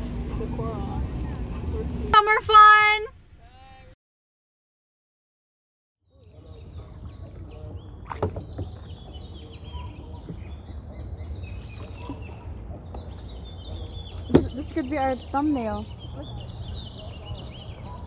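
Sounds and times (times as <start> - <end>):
low steady rumble: 0.0 - 3.9
birds chirping: 6.1 - 18.0.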